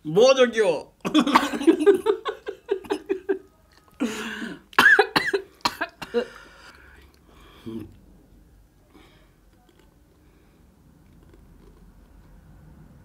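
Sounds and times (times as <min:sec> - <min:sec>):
people laughing hard: 0:01.1 - 0:03.4.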